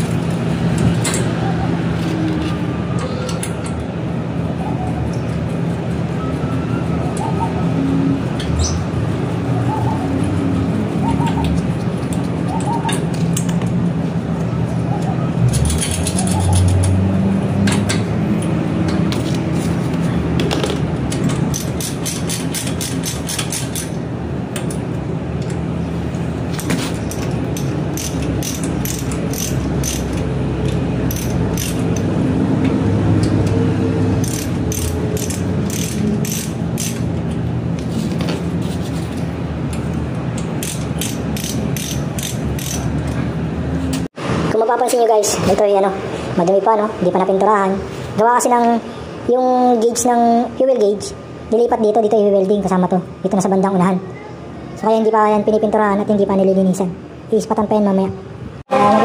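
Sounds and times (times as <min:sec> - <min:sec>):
ratchet wrench clicking: 0:15.5 - 0:17.0, 0:21.1 - 0:24.0, 0:27.1 - 0:32.1, 0:34.2 - 0:37.1, 0:40.4 - 0:43.2.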